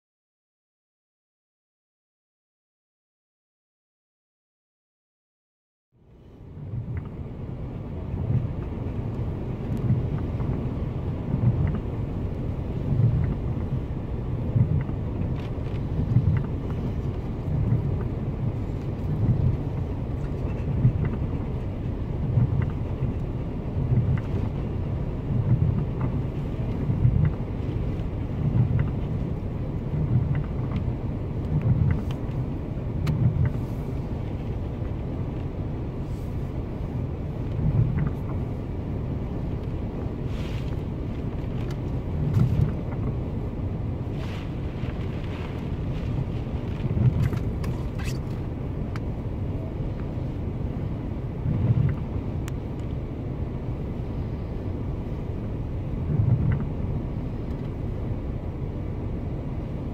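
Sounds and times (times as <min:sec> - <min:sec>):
storm wind rumble in gusts: 0:06.0 - 0:59.9
rain ticking on windscreen: 0:06.2 - 0:59.9.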